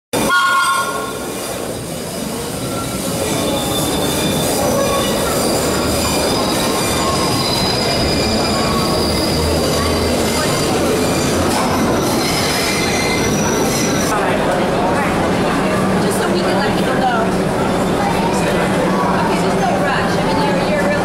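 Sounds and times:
high-pitched wheel squeals: 0:00.2 - 0:01.5, 0:02.6 - 0:14.1
train wheels rumbling on rails: 0:00.2 - 0:21.0.

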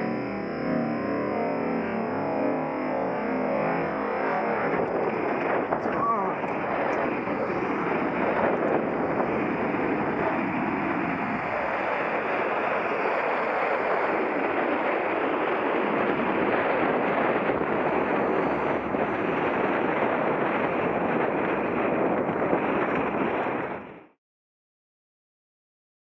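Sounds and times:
road traffic noise: 0:00.0 - 0:00.2
wind rushing over microphone: 0:00.0 - 0:24.1.

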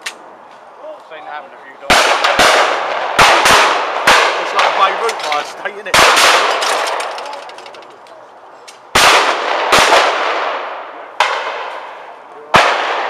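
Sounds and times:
shotgun shots echoing: 0:01.9 - 0:07.0, 0:08.9 - 0:13.0.

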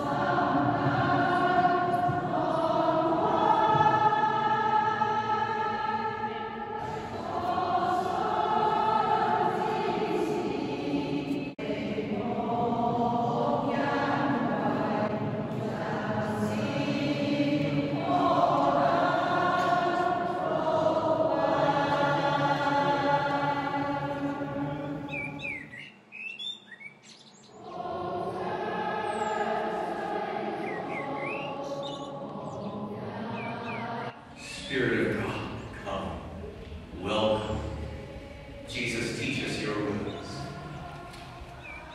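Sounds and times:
group singing a hymn: 0:00.0 - 0:26.1, 0:27.3 - 0:41.9
birds chirping: 0:24.7 - 0:27.8, 0:29.0 - 0:29.5, 0:30.5 - 0:36.6, 0:37.2 - 0:41.9.

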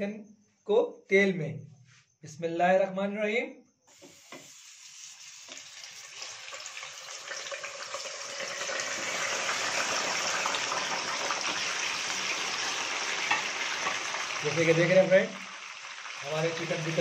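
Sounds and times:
oil sizzling in a wok: 0:03.9 - 0:17.0.

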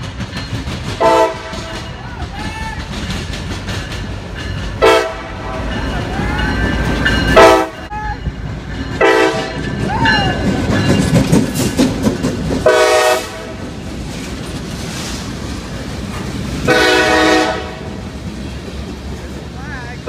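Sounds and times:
train wheels rumbling over rails: 0:00.0 - 0:20.0
locomotive air horn blasts: 0:01.0 - 0:01.8, 0:04.8 - 0:05.7, 0:07.4 - 0:07.9, 0:09.0 - 0:09.6, 0:12.6 - 0:13.6, 0:16.6 - 0:18.0.

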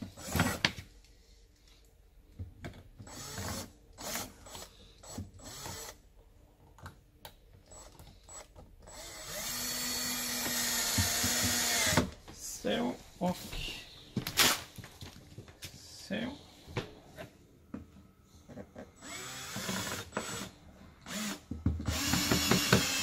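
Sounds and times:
cordless drill motor spinning: 0:03.1 - 0:06.0, 0:07.7 - 0:12.0, 0:19.0 - 0:23.0.

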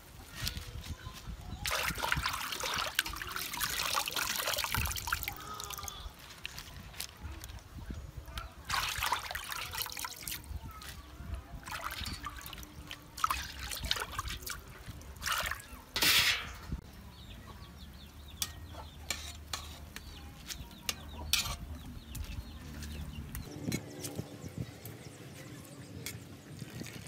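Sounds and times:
water splashing in metal bowl: 0:01.6 - 0:06.1, 0:08.6 - 0:10.5, 0:11.6 - 0:16.8.

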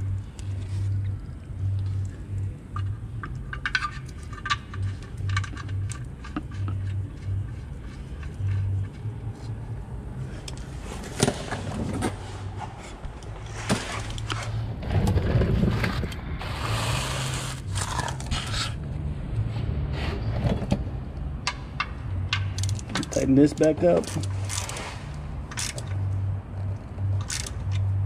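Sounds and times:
tools clicking and knocking: 0:02.8 - 0:09.1, 0:21.4 - 0:24.8, 0:27.1 - 0:28.0.

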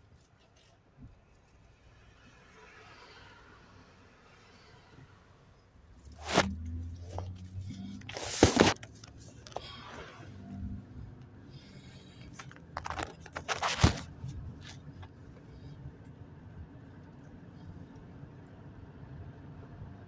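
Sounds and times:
microphone handling rustling and knocks: 0:06.2 - 0:09.8, 0:12.2 - 0:15.2.

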